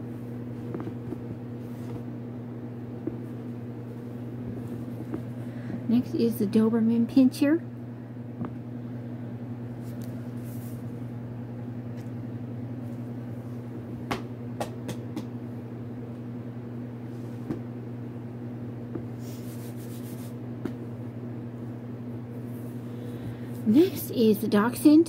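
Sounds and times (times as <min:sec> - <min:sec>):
steady low hum: 0:00.0 - 0:25.0
book being handled: 0:00.6 - 0:02.1, 0:03.0 - 0:05.4.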